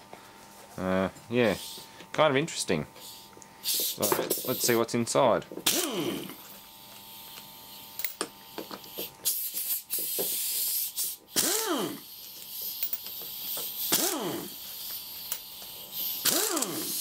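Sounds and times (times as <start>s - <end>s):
air hissing through impact wrench: 1.5s - 2.0s, 3.0s - 4.9s, 5.6s - 6.5s, 7.1s - 17.0s
impact wrench motor spinning: 3.0s - 4.9s, 5.5s - 17.0s.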